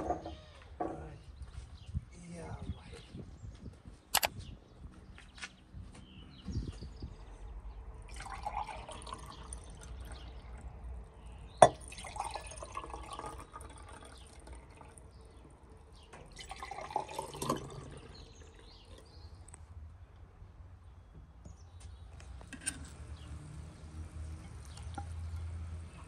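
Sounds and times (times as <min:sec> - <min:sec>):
drink pouring into glasses: 0:08.0 - 0:10.8, 0:11.5 - 0:19.6, 0:24.2 - 0:25.8
glass clink: 0:11.6 - 0:12.4.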